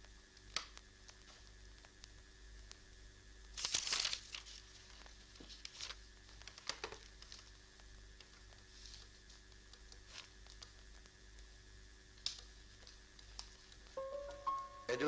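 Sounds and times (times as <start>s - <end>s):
faint steady hum: 0.0s - 15.0s
paper rustling: 3.6s - 7.6s, 8.2s - 10.8s.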